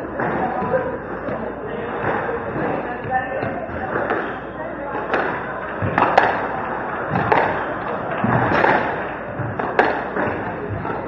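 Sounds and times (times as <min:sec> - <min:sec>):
squash ball cracks: 0:05.0 - 0:10.6.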